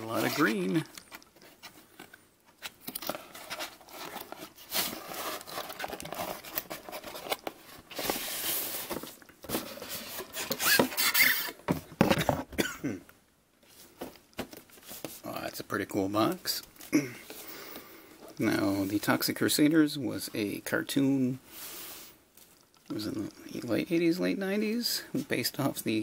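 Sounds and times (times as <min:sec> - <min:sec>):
cardboard box scraping and rustling: 0:00.0 - 0:00.8, 0:03.1 - 0:11.5.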